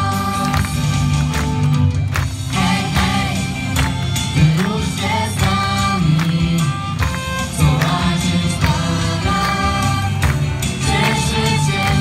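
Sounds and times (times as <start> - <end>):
bass line: 0.0 - 12.0
drum beat: 0.0 - 12.0
choir singing: 2.5 - 3.8, 4.4 - 6.7, 7.5 - 12.0.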